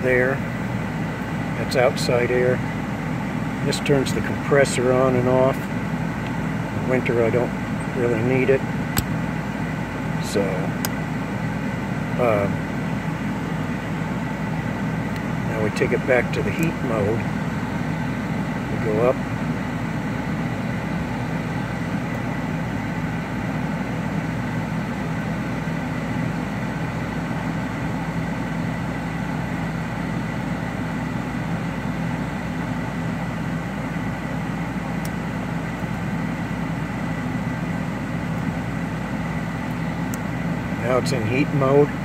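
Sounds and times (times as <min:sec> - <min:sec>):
car engine humming: 0:00.0 - 0:25.6
faint steady whine: 0:00.0 - 0:42.0.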